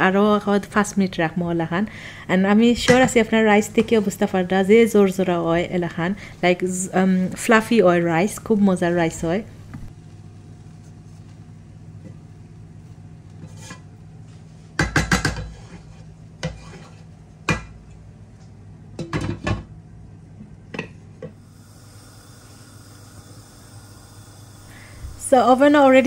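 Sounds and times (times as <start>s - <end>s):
spatula scraping a cooking pot: 13.3s - 13.9s, 15.2s - 17.2s.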